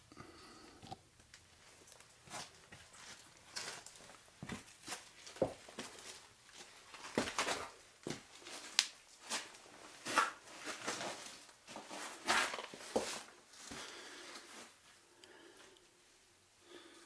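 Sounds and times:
person breathing: 0:00.0 - 0:00.9, 0:13.6 - 0:17.0
clothing rustle: 0:01.6 - 0:14.9
footsteps scuffing on sandstone: 0:02.3 - 0:13.8.

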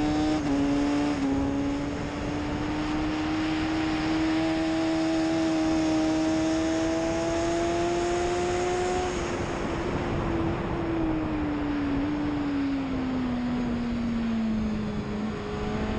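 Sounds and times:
motorcycle engine revving: 0:00.0 - 0:09.8, 0:13.2 - 0:15.9
wind rush on microphone: 0:00.0 - 0:15.9.

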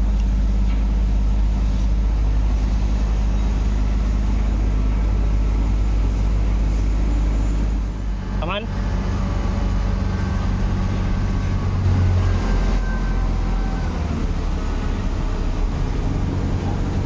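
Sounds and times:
large engine droning: 0:00.0 - 0:17.0.

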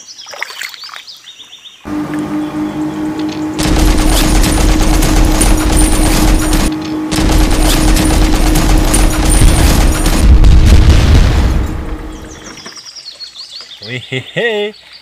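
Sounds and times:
machine-gun automatic fire: 0:03.6 - 0:12.2.

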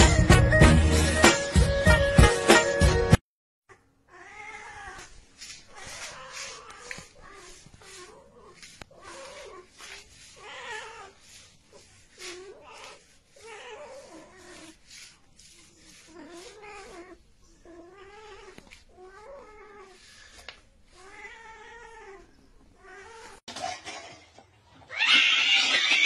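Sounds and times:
cat meowing: 0:03.7 - 0:14.8.

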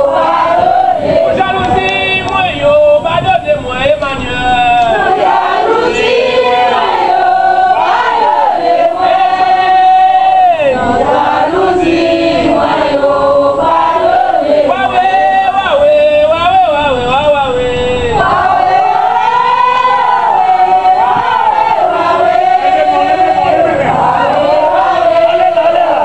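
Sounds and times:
crowd singing a chant: 0:00.0 - 0:03.0, 0:04.2 - 0:17.0, 0:17.6 - 0:26.0.

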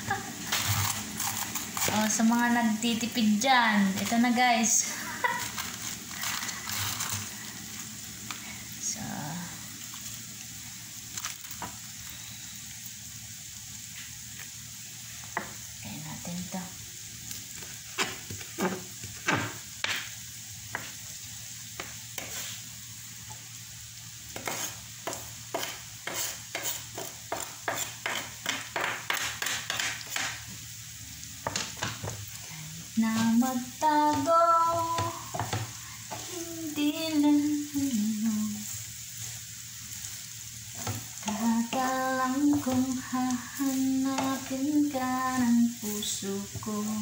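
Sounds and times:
steady hiss: 0:00.0 - 0:47.0
knife shredding cabbage on board: 0:00.5 - 0:02.2.

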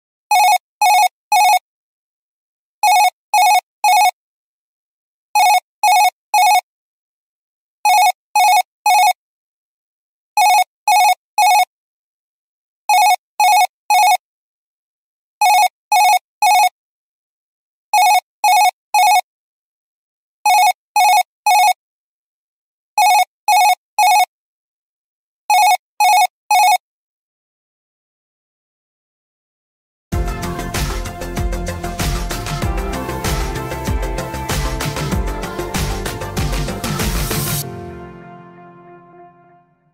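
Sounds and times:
telephone ringtone beeps: 0:00.3 - 0:01.6, 0:02.8 - 0:04.2, 0:05.4 - 0:06.6, 0:07.9 - 0:09.2, 0:10.4 - 0:11.7, 0:12.9 - 0:14.2, 0:15.4 - 0:16.8, 0:18.0 - 0:19.3, 0:20.5 - 0:21.8, 0:23.0 - 0:24.3, 0:25.5 - 0:26.8.

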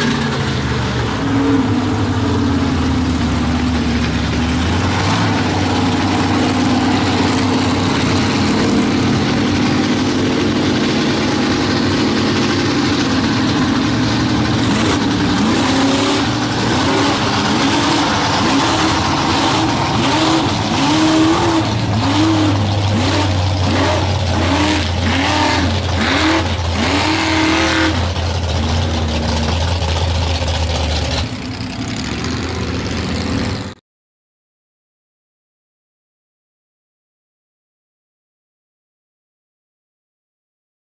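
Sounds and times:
mud truck engine revving: 0:00.0 - 0:33.8.

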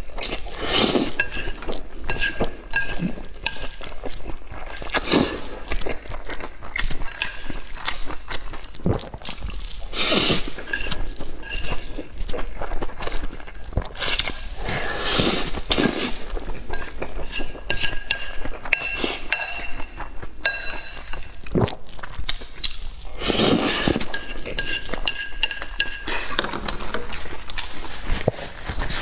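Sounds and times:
noodles being slurped: 0:00.0 - 0:29.0
chopsticks clinking on a bowl: 0:01.2 - 0:03.8, 0:06.9 - 0:08.1, 0:10.6 - 0:12.0, 0:16.7 - 0:21.4, 0:24.0 - 0:27.1.

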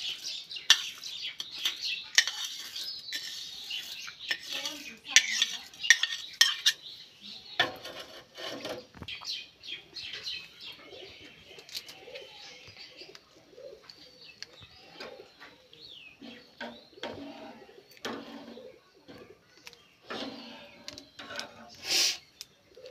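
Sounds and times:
birds chirping faintly: 0:00.0 - 0:22.9
spoon clinking on plate and pan: 0:00.1 - 0:06.8.

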